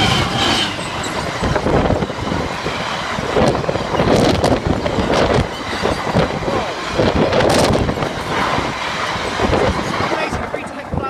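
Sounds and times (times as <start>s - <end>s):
freight train passing: 0.0s - 11.0s
wheels clattering on track: 0.0s - 11.0s.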